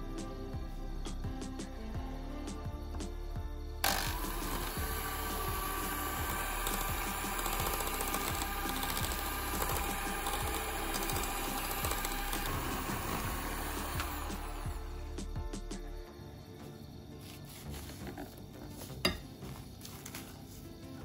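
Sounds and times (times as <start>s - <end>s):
electric hand mixer whirring: 3.8s - 15.1s.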